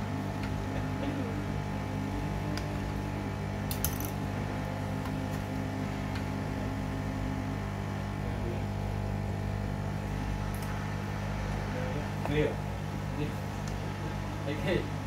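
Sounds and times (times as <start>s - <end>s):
desoldering tool humming: 0.0s - 15.0s.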